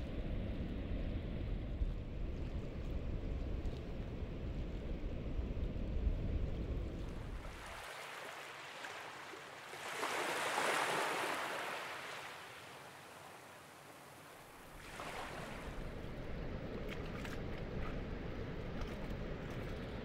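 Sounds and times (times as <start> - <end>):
surf washing onto beach: 6.8 - 16.2.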